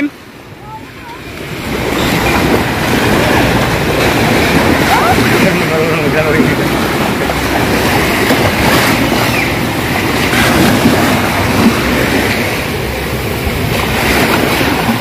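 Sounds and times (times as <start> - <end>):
small waves washing: 0.0 - 15.0
wind on microphone: 0.8 - 15.0.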